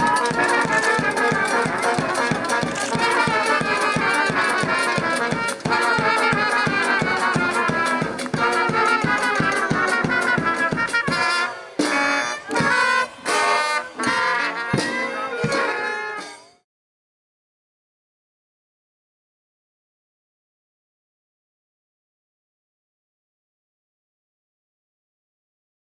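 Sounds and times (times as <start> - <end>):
brass band music: 0.0 - 16.6.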